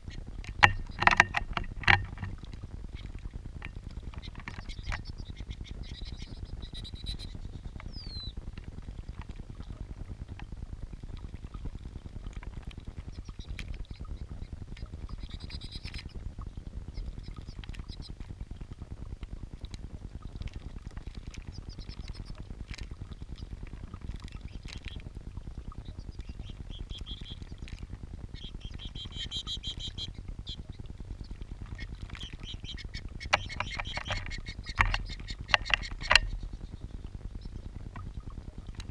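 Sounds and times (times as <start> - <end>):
high bird chirps: 4.2 - 8.3, 28.4 - 30.6.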